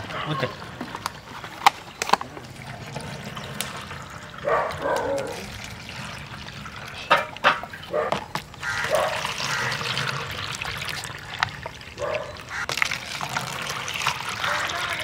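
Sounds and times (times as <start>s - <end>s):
juice pouring into plastic cups: 0.0s - 15.0s
plastic cups knocking: 7.0s - 11.8s.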